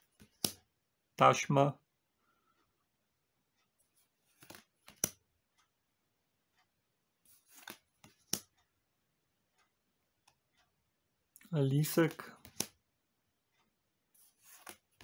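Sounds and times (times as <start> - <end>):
cards rustling: 3.9 - 5.2, 7.3 - 8.5, 12.0 - 12.8, 14.2 - 15.0.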